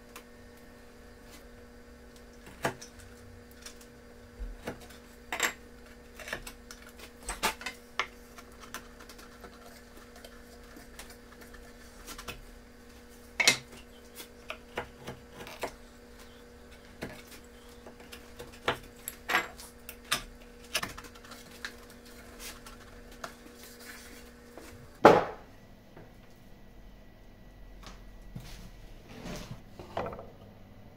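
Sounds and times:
tools knocking on workbench: 25.0s - 25.4s.

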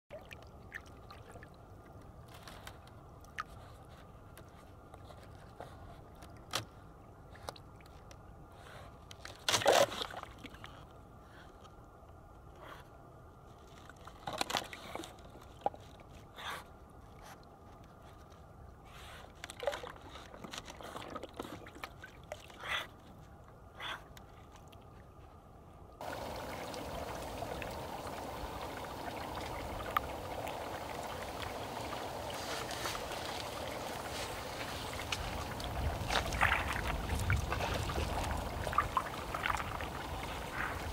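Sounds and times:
animal splashing in shallow water: 26.0s - 40.9s
rushing water: 26.0s - 40.9s.

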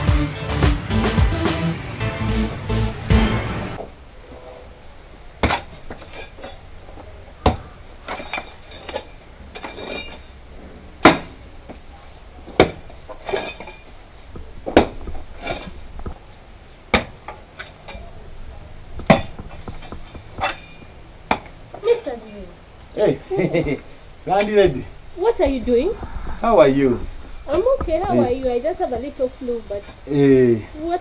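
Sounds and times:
soil scraping and falling: 5.4s - 22.2s
digging tool chopping earth: 16.9s - 17.3s.

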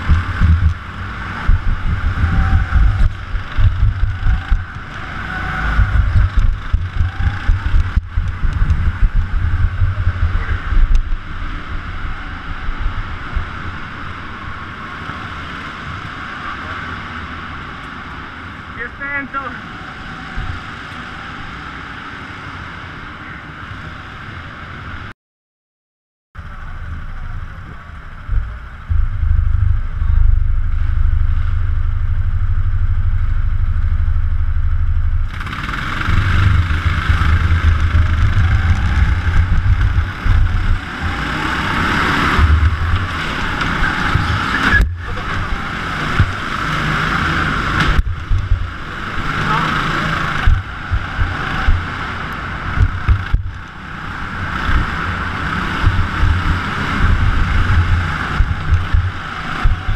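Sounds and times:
go-kart engine: 0.0s - 25.1s, 26.4s - 59.9s.

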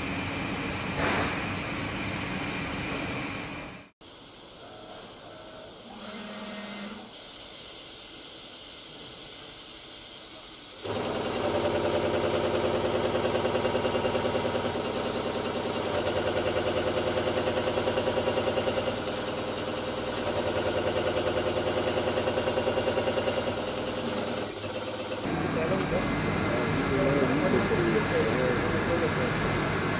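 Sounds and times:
machine hum and hiss: 0.0s - 29.9s
lathe boring steel: 10.9s - 25.3s.

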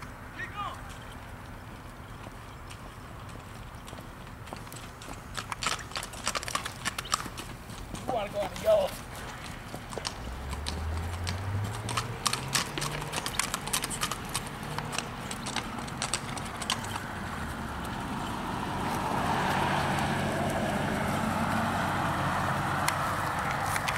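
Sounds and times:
horse hooves clopping: 0.0s - 23.9s.

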